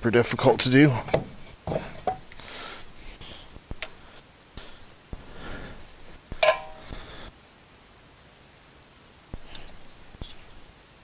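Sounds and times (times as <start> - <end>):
sharp ringing metal clink: 6.4 - 6.8
metal tools clinking: 6.4 - 6.9.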